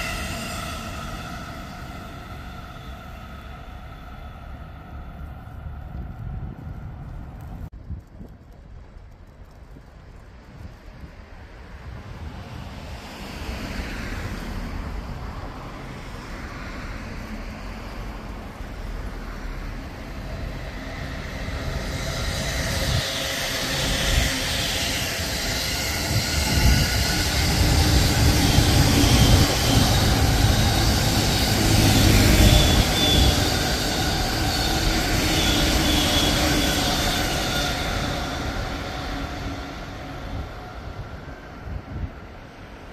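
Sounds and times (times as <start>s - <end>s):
electric train passing: 0.0s - 7.6s, 9.1s - 42.9s.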